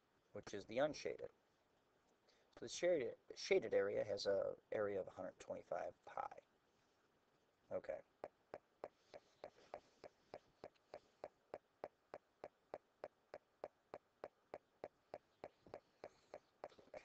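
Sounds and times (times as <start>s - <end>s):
quiet rhythmic clicks: 5.3s - 6.4s, 8.0s - 17.0s.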